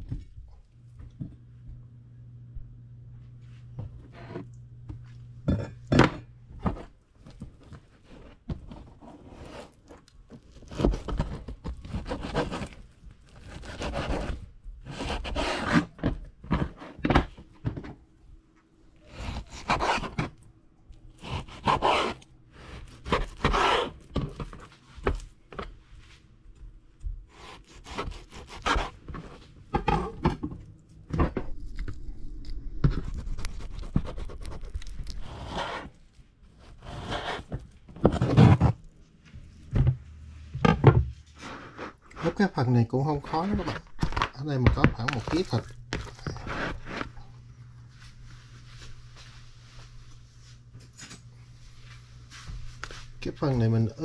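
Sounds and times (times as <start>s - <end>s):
knife scraping: 8.0s - 16.0s, 19.1s - 20.4s, 21.2s - 24.7s, 27.3s - 30.2s, 32.8s - 38.8s, 45.2s - 47.3s
knife chopping on wooden board: 27.4s - 29.3s.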